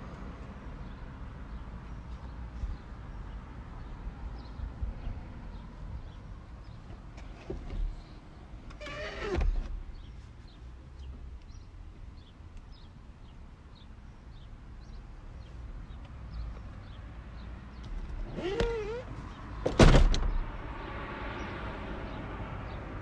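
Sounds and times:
small birds chirping: 0:09.9 - 0:19.6.

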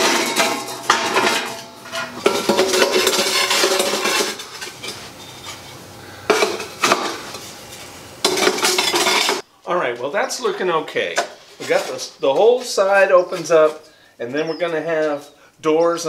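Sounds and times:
bricks scraping against steel: 0:00.0 - 0:07.5.

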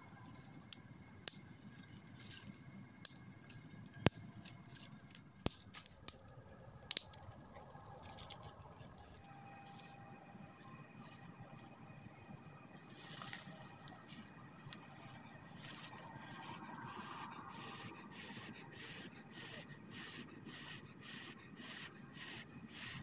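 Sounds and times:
insects chirring: 0:00.0 - 0:23.0
dry twigs snapping: 0:06.8 - 0:07.3.

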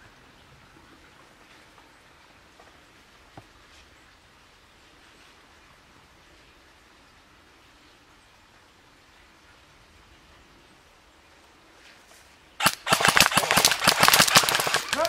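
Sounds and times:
rapid airsoft gunfire: 0:12.6 - 0:15.0.

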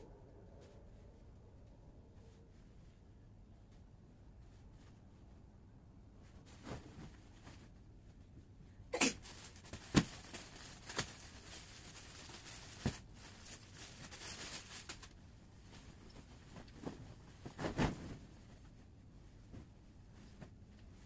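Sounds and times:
bedding rustling: 0:00.6 - 0:21.0
fabric thumps and flaps: 0:15.8 - 0:18.6.

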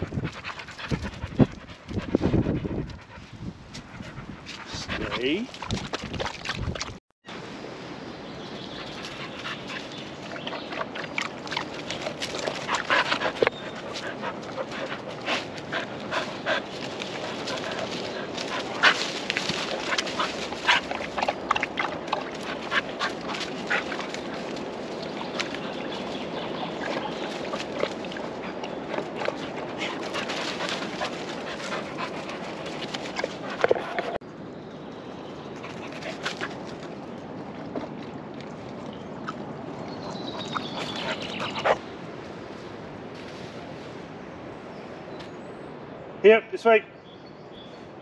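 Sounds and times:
dogs snuffling and panting: 0:00.0 - 0:06.8, 0:08.7 - 0:34.2, 0:35.4 - 0:42.5
dog paws crunching dry leaves: 0:11.3 - 0:28.6.

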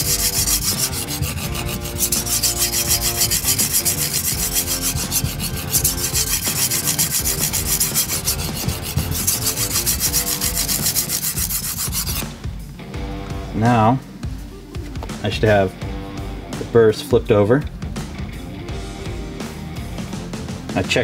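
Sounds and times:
knife scraping on sharpening stone: 0:00.0 - 0:12.2.

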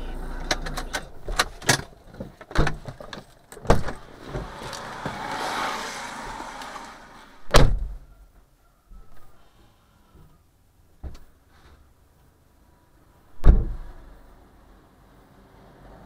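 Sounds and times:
loud thump: 0:07.4 - 0:08.0, 0:13.4 - 0:14.0.

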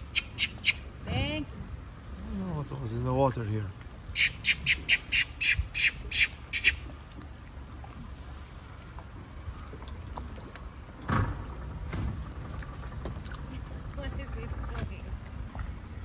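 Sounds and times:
bird harsh calls: 0:00.0 - 0:00.9, 0:04.1 - 0:06.9
low steady rumble: 0:00.0 - 0:16.0.

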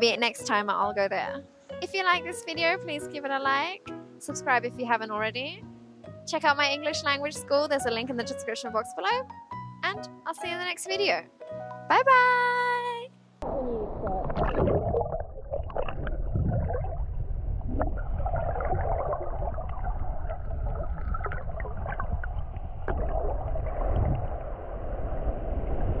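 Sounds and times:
underwater rumbling wash: 0:13.5 - 0:26.0.

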